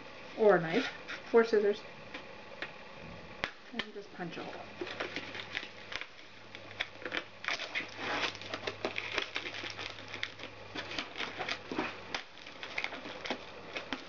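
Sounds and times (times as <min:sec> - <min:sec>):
plastic wrap crinkling and tearing: 0:04.8 - 0:14.0.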